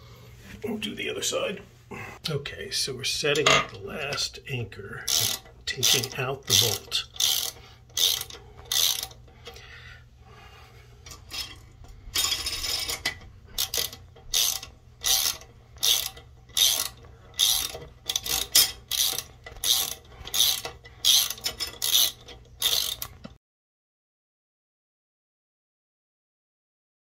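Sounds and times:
ratchet wrench clicking: 0:05.1 - 0:09.6, 0:12.2 - 0:23.3.

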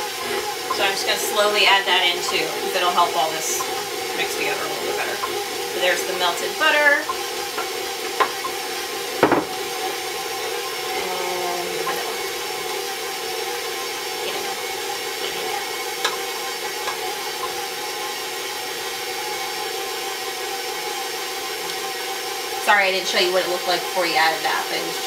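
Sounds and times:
stand mixer running: 0:00.0 - 0:25.0.

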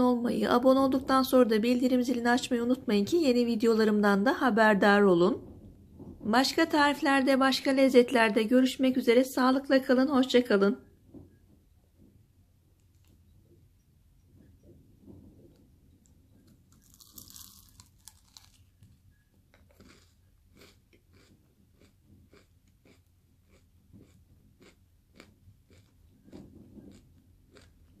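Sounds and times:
crunchy food chewing: 0:16.4 - 0:28.0.

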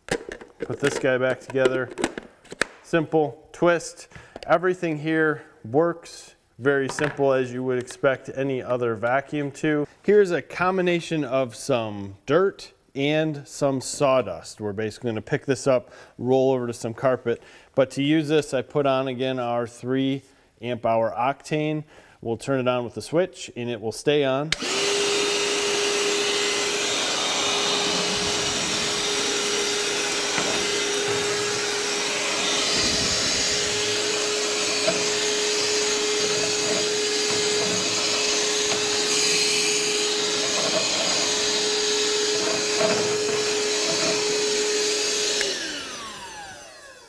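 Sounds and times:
hand vacuum running: 0:24.5 - 0:47.0
vacuum motor winding down: 0:24.5 - 0:47.0.

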